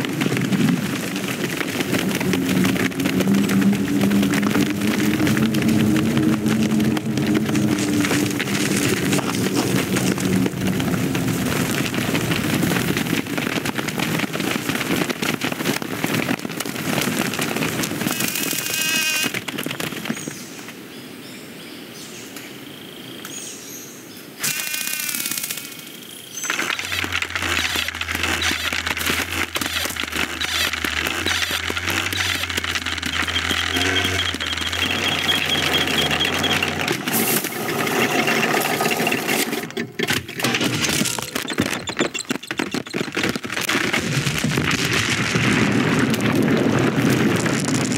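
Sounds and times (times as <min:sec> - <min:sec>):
ants scurrying crackling patter: 0:00.0 - 0:20.7, 0:26.3 - 0:39.6, 0:40.6 - 0:47.9
high-pitched warbling sounds: 0:26.6 - 0:39.7.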